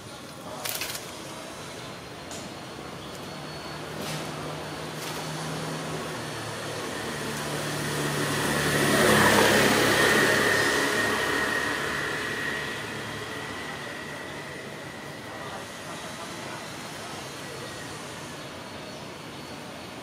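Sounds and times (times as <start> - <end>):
road noise: 0.0 - 20.0
vehicle engine passing: 4.0 - 15.0.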